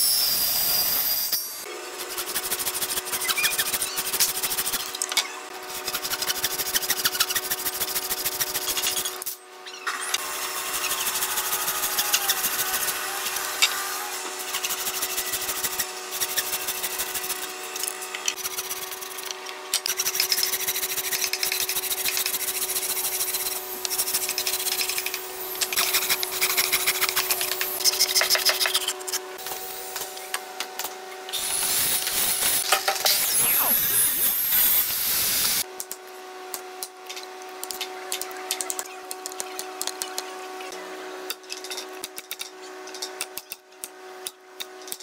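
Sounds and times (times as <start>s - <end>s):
metal file rasping on wood: 5.7s - 9.1s, 18.4s - 24.9s
mitre saw running: 10.2s - 19.3s, 31.4s - 35.6s.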